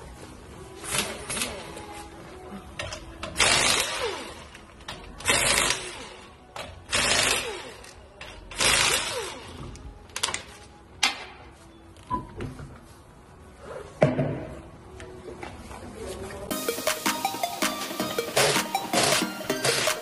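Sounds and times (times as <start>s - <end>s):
pneumatic impact wrench bursts: 3.3s - 4.6s, 5.2s - 9.6s.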